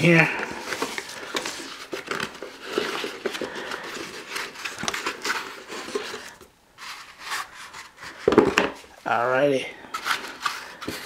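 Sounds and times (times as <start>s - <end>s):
rustling and small knocks: 0.6s - 9.0s.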